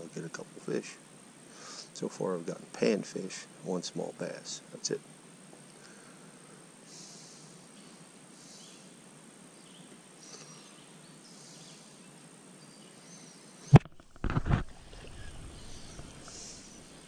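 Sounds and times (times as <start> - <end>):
faint bird chirps: 7.0 - 13.8, 14.8 - 17.0
microphone rubbing and handling noise: 13.7 - 17.0.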